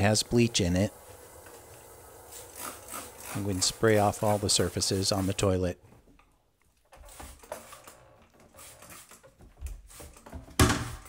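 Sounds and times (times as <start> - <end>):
trigger spray bottle spraying: 2.2 - 5.6, 6.9 - 10.3.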